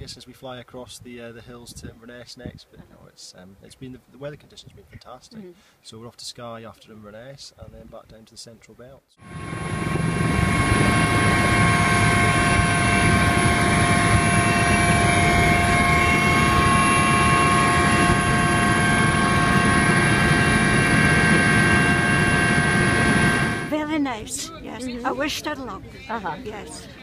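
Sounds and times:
helicopter rotor and engine: 9.2s - 23.9s
high whine: 9.2s - 23.9s.

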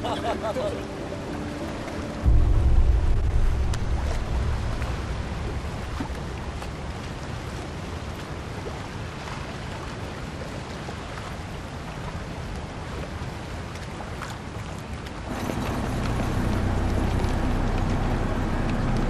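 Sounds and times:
sea and wind rushing: 0.0s - 19.0s
low rumble: 2.2s - 7.6s, 15.3s - 19.0s.

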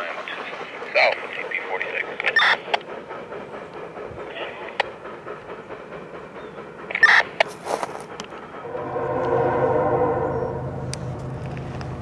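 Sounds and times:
train wheels rumbling on rail: 0.0s - 12.0s
sharp track clicks: 0.2s - 7.5s.

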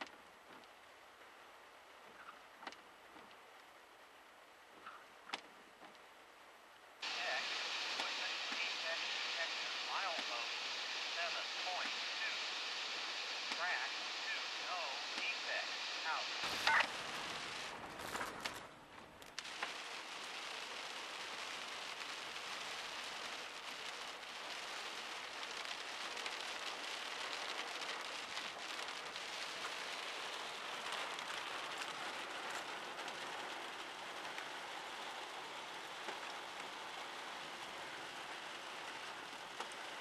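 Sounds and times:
heavy rain on a car: 0.0s - 40.0s.

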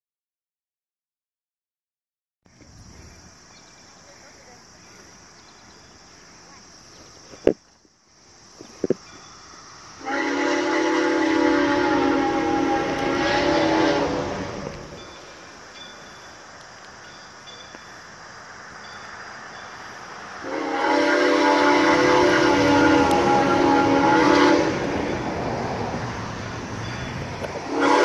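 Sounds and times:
steam locomotive chime whistle: 9.1s - 16.4s, 20.4s - 25.7s, 26.8s - 28.0s.

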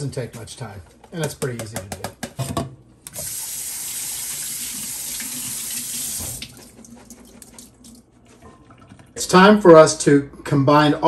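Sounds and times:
faucet running onto beans: 3.1s - 6.7s.

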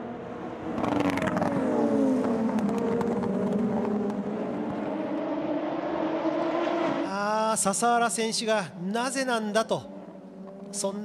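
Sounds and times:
race car engines accelerating: 0.0s - 11.0s.

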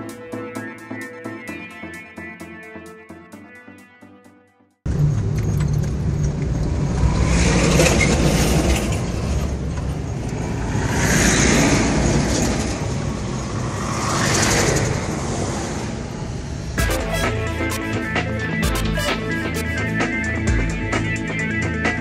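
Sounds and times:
road traffic roar: 4.9s - 22.0s
vehicles passing: 4.9s - 22.0s.

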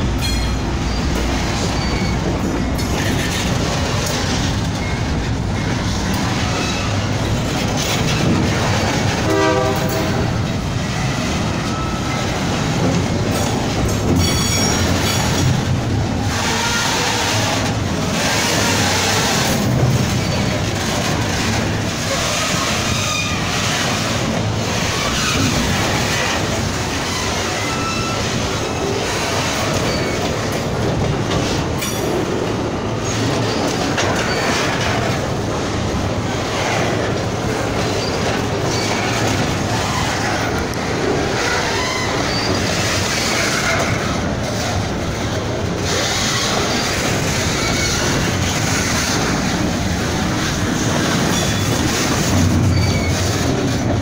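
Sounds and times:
train wheels rumbling on rails: 0.0s - 54.0s
faint wheel squeals: 52.6s - 53.4s.

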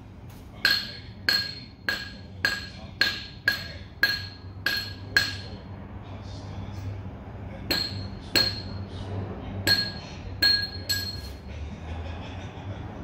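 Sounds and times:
hammer striking steel: 0.6s - 5.7s, 7.7s - 8.9s, 9.6s - 11.4s.

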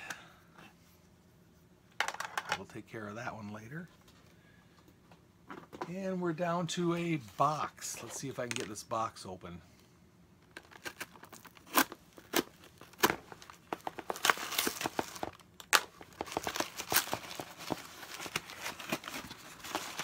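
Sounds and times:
packaging crinkling: 10.4s - 20.0s
tape and cardboard tearing: 10.6s - 20.0s
cardboard box being opened: 12.9s - 15.4s, 16.0s - 20.0s.

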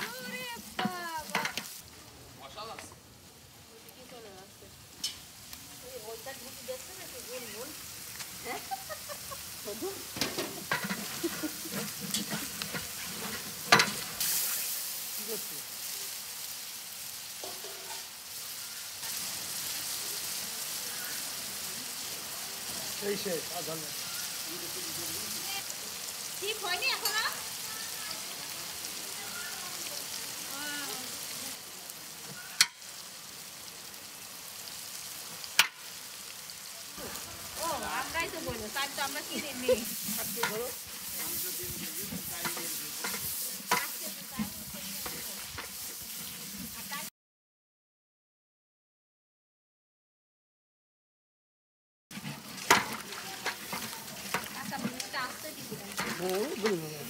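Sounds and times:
pot boiling hissing and bubbling: 0.0s - 47.1s, 52.1s - 57.0s
paddle scraping metal pot: 10.1s - 14.2s, 52.1s - 56.9s.

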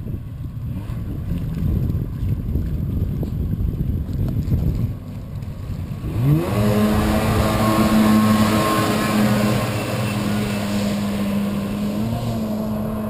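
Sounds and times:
water noise: 0.0s - 13.0s
wind: 0.0s - 13.0s
jet boat engine revving: 5.2s - 13.0s.

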